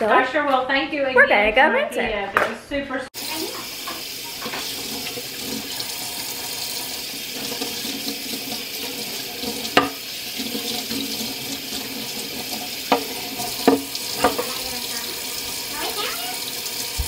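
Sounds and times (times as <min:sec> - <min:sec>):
faucet water splashing in sink: 0:03.2 - 0:17.0
sharp knocks of skillet: 0:09.8 - 0:10.0.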